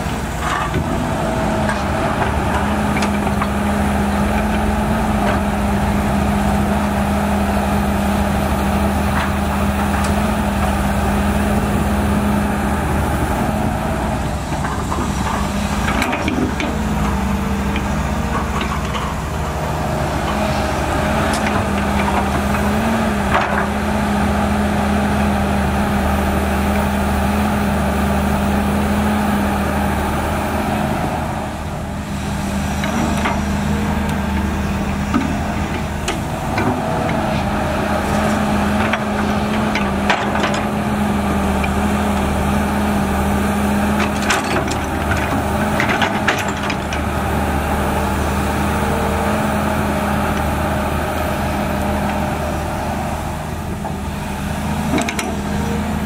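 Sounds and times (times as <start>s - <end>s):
excavator diesel engine: 0.0s - 56.0s
knocks of metal and earth: 14.3s - 23.9s, 32.6s - 42.2s, 43.8s - 48.3s, 53.7s - 55.9s.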